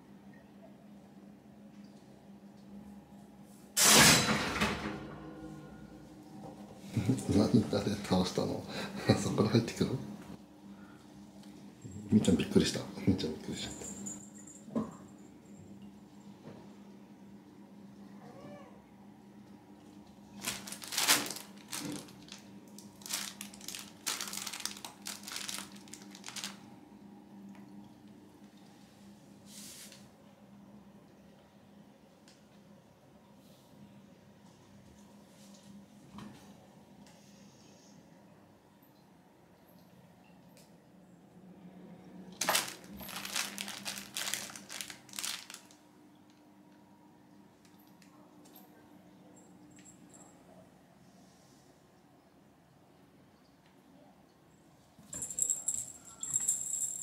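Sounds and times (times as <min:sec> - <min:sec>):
fabric tunnel rustling and crinkling: 0:20.4 - 0:26.6, 0:42.4 - 0:45.8.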